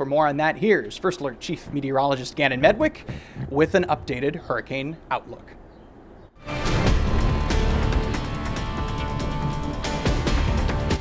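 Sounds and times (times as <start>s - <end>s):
news theme music: 6.4s - 11.0s.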